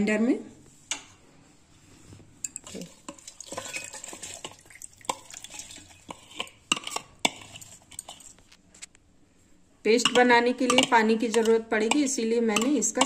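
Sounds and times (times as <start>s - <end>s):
spoon clinking on glass and steel: 2.4s - 6.1s
spoon scraping wet food: 2.4s - 8.9s, 9.9s - 13.0s.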